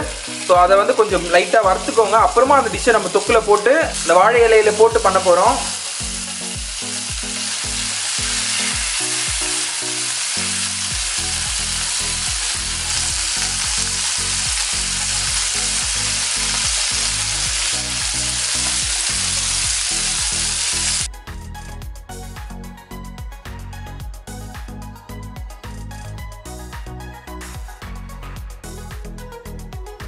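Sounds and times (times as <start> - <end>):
fish sizzling in oil: 0.0 - 21.1.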